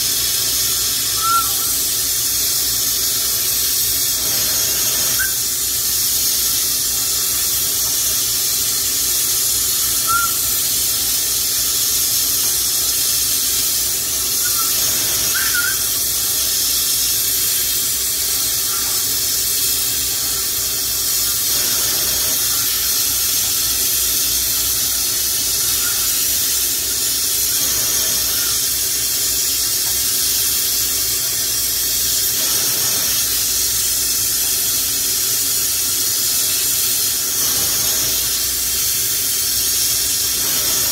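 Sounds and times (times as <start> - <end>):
torch flame hissing: 0.0 - 40.9.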